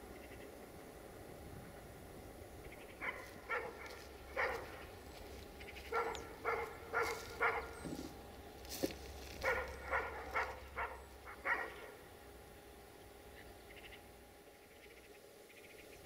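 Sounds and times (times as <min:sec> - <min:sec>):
dog barking: 0:03.0 - 0:04.8, 0:05.9 - 0:08.1, 0:09.4 - 0:12.0.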